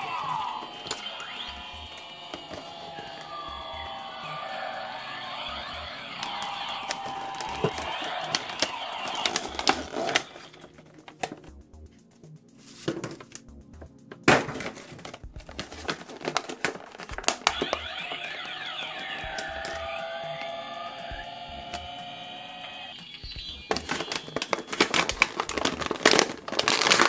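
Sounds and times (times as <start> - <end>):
background music: 0.0 - 27.0
plastic packaging crackling: 6.2 - 11.4, 14.5 - 18.5, 23.7 - 27.0
sharp plastic crack: 14.2 - 18.2, 23.7 - 27.0.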